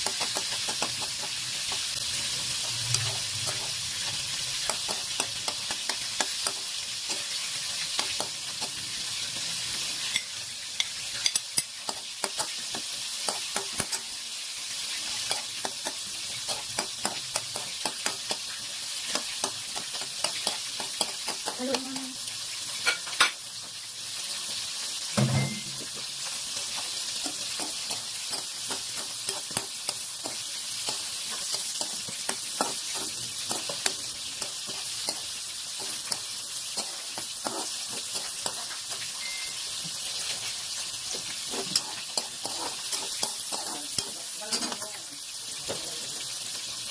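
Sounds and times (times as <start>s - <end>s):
spatula scraping a wok: 0.0s - 22.0s, 26.2s - 45.2s
vegetables sizzling in oil: 0.0s - 46.9s.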